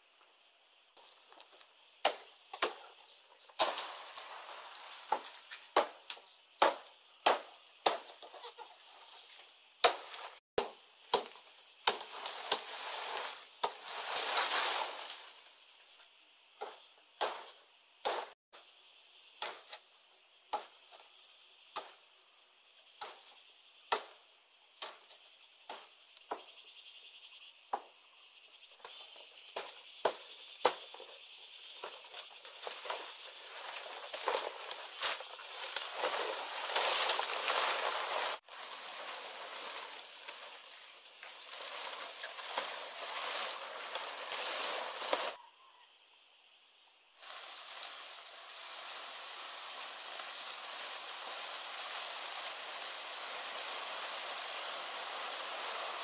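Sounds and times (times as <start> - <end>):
leaves rustling: 1.0 - 6.4, 7.8 - 10.4, 11.1 - 15.7, 28.8 - 45.4, 47.2 - 56.0
blade chopping stalks: 2.0 - 8.3, 9.8 - 14.4, 31.8 - 40.8, 41.4 - 45.4.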